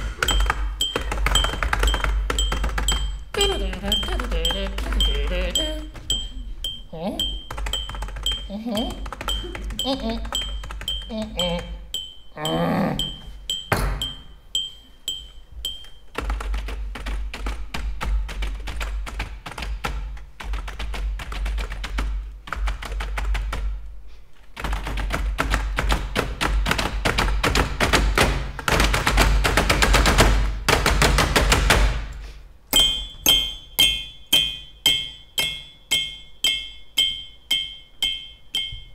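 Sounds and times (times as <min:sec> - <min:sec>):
keys clattering rhythmically: 0:00.0 - 0:23.8, 0:32.7 - 0:38.9
bright ringing ding: 0:00.2 - 0:03.2, 0:10.4 - 0:16.0, 0:32.7 - 0:38.9.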